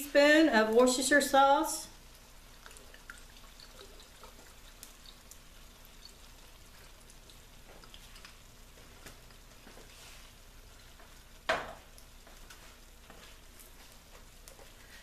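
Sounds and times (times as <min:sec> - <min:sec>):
food sizzling and popping: 0:00.0 - 0:15.0
sauce pouring: 0:02.0 - 0:09.6.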